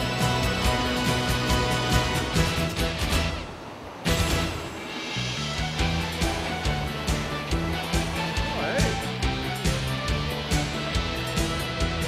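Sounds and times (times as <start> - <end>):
music with quick drum beat: 5.5 - 12.0.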